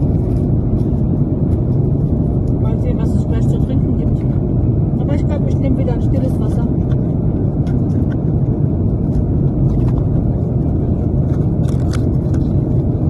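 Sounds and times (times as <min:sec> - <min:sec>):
airliner cabin rumble: 0:00.0 - 0:13.0
snack packet crinkling: 0:11.0 - 0:12.8.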